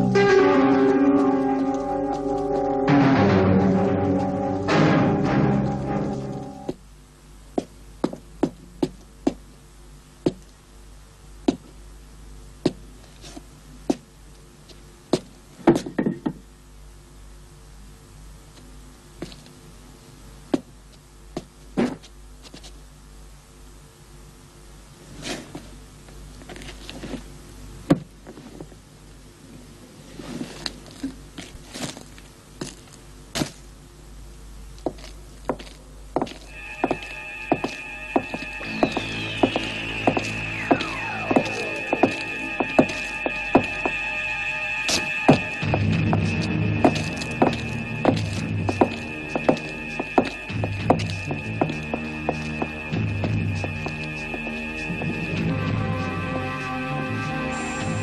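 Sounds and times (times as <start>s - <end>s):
faint steady hum: 0.0s - 58.0s
footsteps on hard street: 34.8s - 44.0s, 44.9s - 55.4s.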